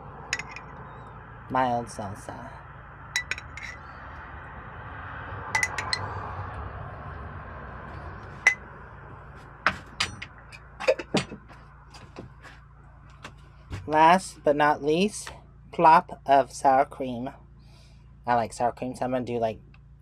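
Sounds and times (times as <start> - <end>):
steady low hum: 0.0 - 20.0
spoon clinking against glass jar: 3.2 - 3.8.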